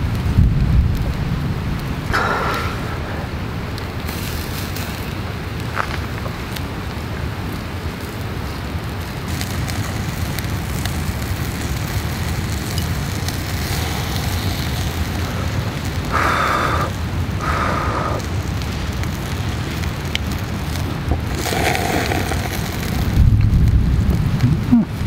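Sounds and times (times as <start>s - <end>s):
low rumble: 0.0s - 6.2s, 10.2s - 25.0s
meat sizzling over charcoal: 0.0s - 25.0s.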